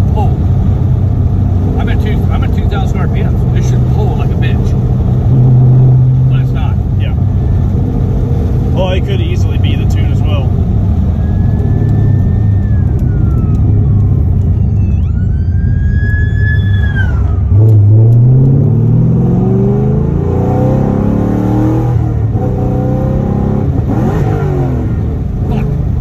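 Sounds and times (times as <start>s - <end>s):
car engine accelerating: 0.0s - 26.0s
high whine: 4.3s - 8.8s.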